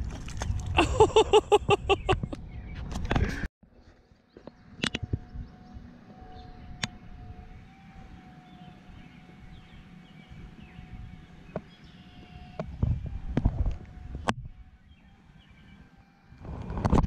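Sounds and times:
distant engine hum: 0.0s - 17.0s.

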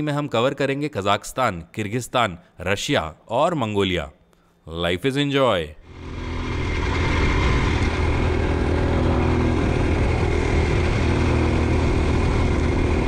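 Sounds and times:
motorcycle engine running: 5.9s - 13.0s
wind and tyres rushing: 5.9s - 13.0s.

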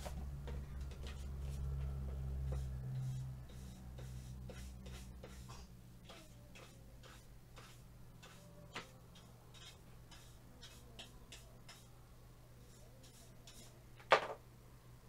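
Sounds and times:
brush sweeping dust: 2.5s - 5.5s, 6.1s - 11.9s.

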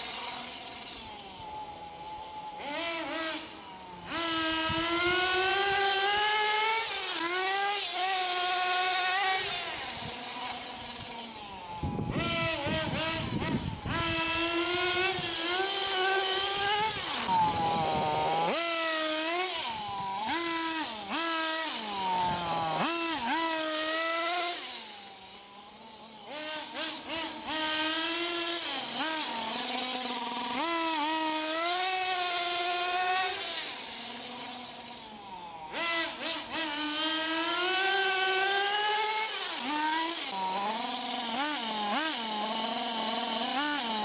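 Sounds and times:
rc car engine buzzing: 0.0s - 44.0s.

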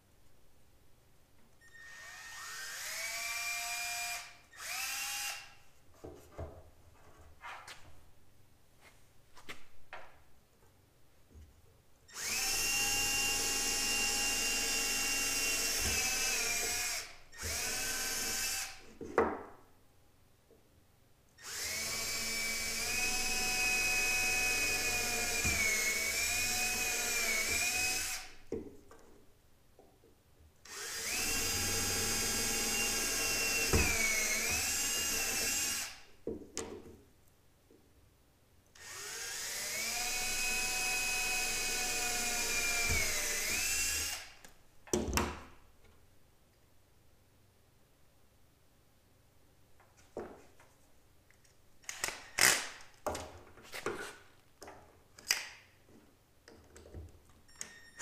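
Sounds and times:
cordless drill drilling plastic: 1.8s - 5.5s, 12.2s - 18.8s, 21.4s - 28.4s, 30.7s - 36.0s, 38.8s - 44.3s.

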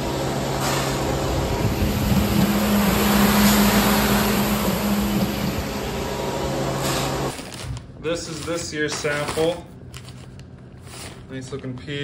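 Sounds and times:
machine hum: 0.0s - 8.0s.

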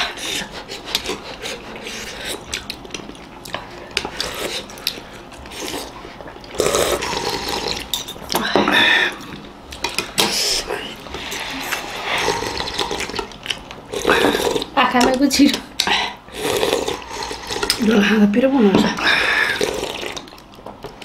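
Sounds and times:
slurping soup: 4.0s - 8.4s, 9.1s - 14.8s, 16.3s - 17.8s, 19.1s - 20.4s
cutlery scraping ceramic bowls: 6.9s - 8.7s, 17.4s - 17.9s.

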